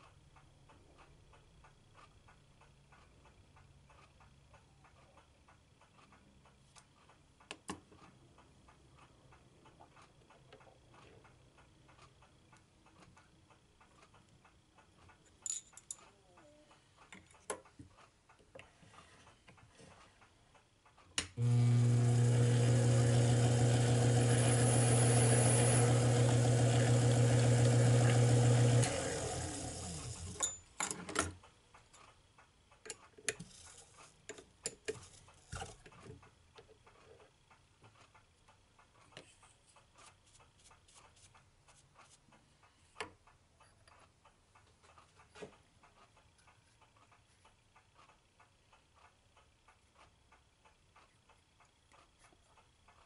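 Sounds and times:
lathe motor humming: 0:21.4 - 0:30.4.

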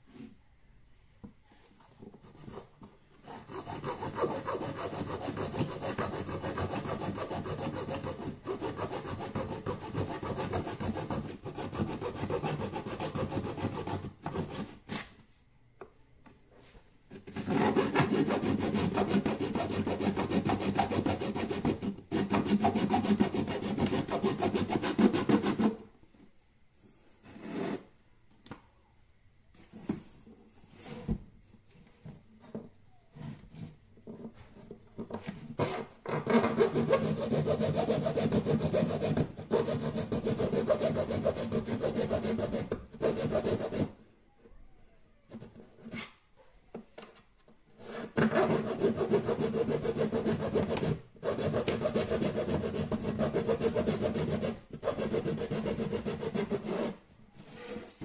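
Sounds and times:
hand saw cutting plastic pipe: 0:03.2 - 0:15.1, 0:17.3 - 0:25.8, 0:35.6 - 0:44.0, 0:47.8 - 0:57.0.

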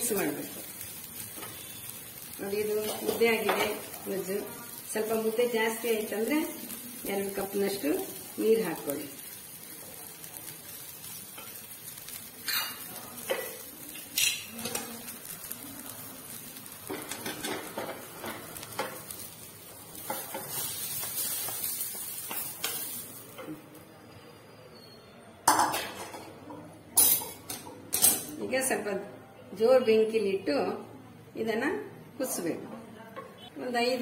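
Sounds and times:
steel cookware clinking: 0:12.4 - 0:15.1, 0:16.8 - 0:19.1, 0:20.0 - 0:23.6, 0:27.0 - 0:28.4
hiss of food pouring in: 0:18.1 - 0:23.4.

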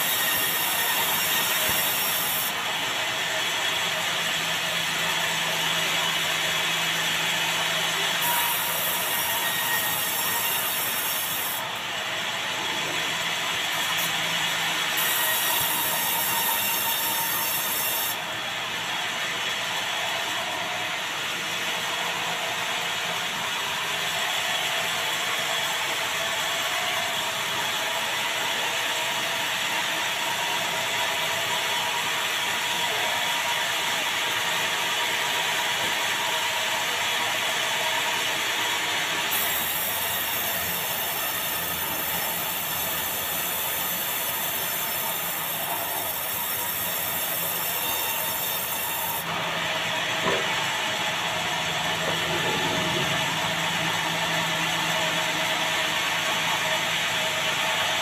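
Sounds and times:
saw blade whining through log: 0:00.0 - 0:18.7, 0:37.0 - 0:57.8.

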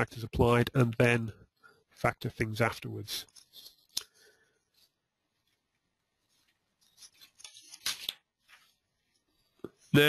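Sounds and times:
faint rustling and scraping: 0:03.1 - 0:10.0.

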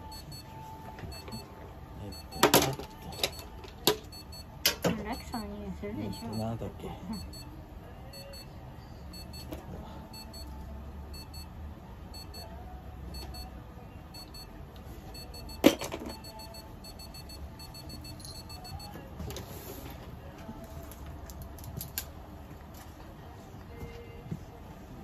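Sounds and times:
electronic device beeping: 0:00.0 - 0:00.5, 0:01.1 - 0:04.5, 0:06.0 - 0:07.5, 0:08.1 - 0:08.5, 0:09.1 - 0:10.5, 0:11.1 - 0:11.5, 0:12.1 - 0:12.5, 0:13.1 - 0:13.5, 0:14.1 - 0:14.5, 0:15.1 - 0:18.9.

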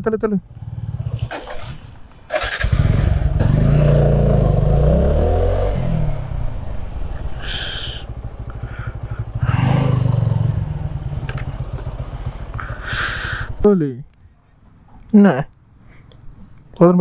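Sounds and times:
motorcycle engine revving: 0:00.4 - 0:13.8.

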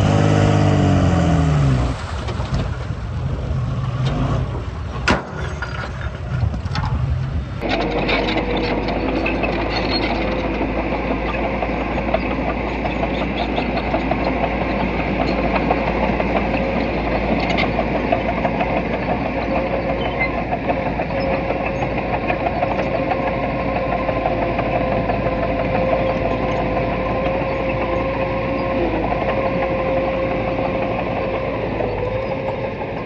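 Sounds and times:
diesel engine running: 0:00.0 - 0:33.0
steady mechanical whine: 0:04.7 - 0:33.0
rapid mechanical clatter: 0:07.6 - 0:33.0.

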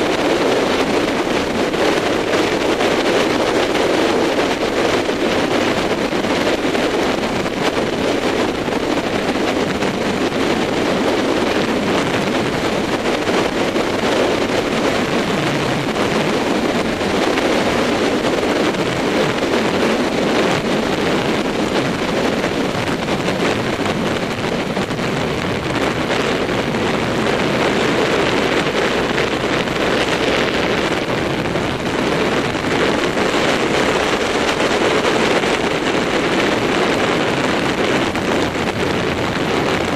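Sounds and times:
motorcycle running: 0:00.0 - 0:39.9
wind buffeting microphone: 0:00.0 - 0:39.9.

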